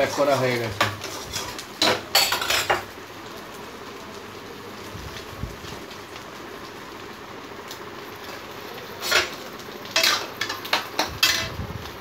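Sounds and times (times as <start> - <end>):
metal spatula scraping wok: 0.0 - 2.6, 9.0 - 11.6
frying hiss: 0.0 - 12.0.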